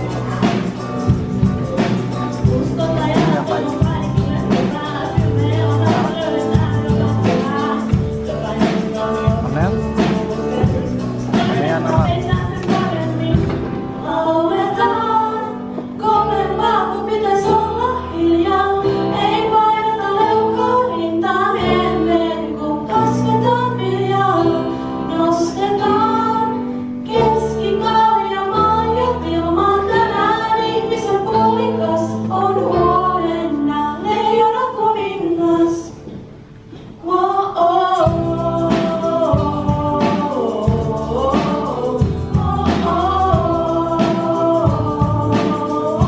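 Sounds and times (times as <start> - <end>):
bass notes: 0.0 - 15.3, 37.9 - 46.0
women singing: 0.0 - 36.2, 36.9 - 46.0.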